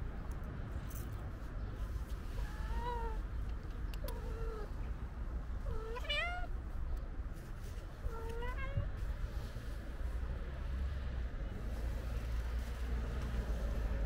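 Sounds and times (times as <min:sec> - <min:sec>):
cat meowing: 0:05.7 - 0:06.5.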